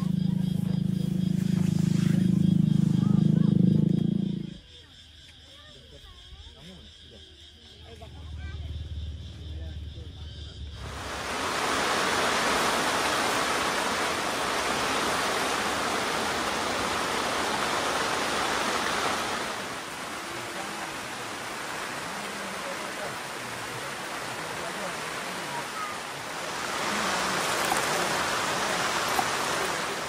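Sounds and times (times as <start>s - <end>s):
heavy rain pouring: 10.8s - 30.0s.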